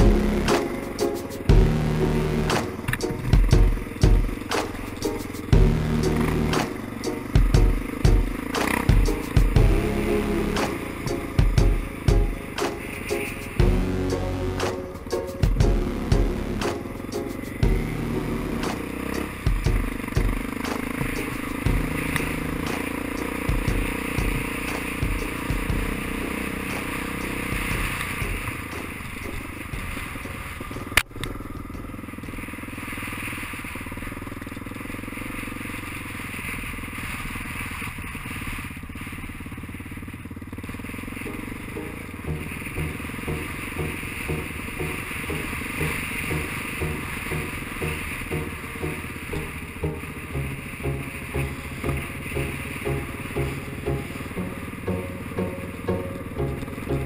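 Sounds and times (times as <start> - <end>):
motorcycle engine running: 0.0 - 57.0
sharp crack: 0.5 - 1.5, 2.5 - 9.6, 10.6 - 13.6, 16.6 - 17.6, 18.6 - 25.3.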